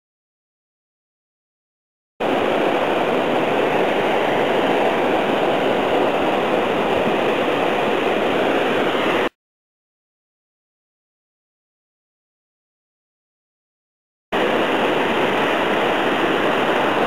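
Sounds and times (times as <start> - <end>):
steady rushing noise: 2.2 - 9.4, 14.4 - 17.0.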